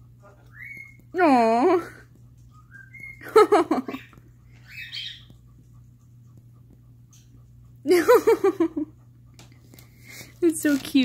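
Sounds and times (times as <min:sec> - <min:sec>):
parrot chirping: 0:00.2 - 0:01.1, 0:02.4 - 0:05.5
person laughing: 0:03.2 - 0:04.0, 0:07.9 - 0:08.9.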